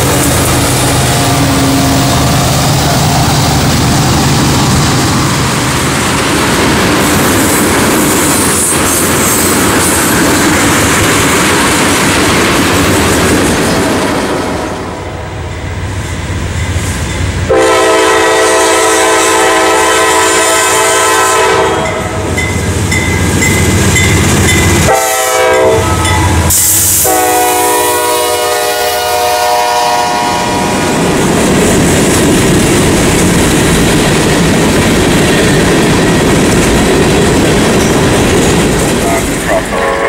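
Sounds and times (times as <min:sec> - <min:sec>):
freight cars rumbling on rails: 0:00.0 - 0:40.0
locomotive air horn blasts: 0:17.5 - 0:22.2, 0:24.8 - 0:30.7, 0:39.0 - 0:40.0.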